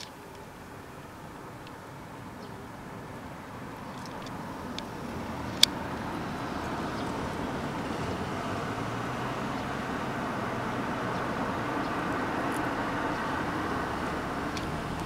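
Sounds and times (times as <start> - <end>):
road traffic rumble: 0.0 - 15.0
sharp clicks: 3.8 - 6.0, 14.4 - 15.0.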